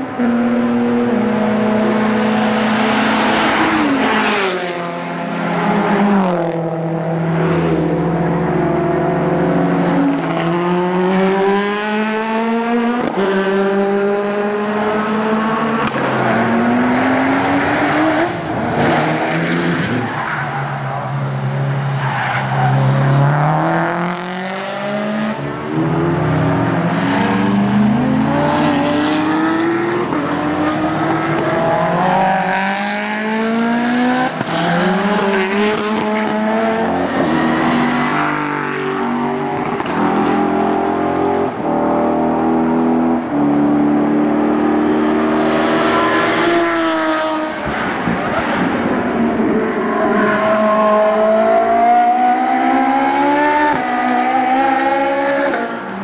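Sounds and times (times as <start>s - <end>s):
race car engines revving: 0.0s - 56.0s.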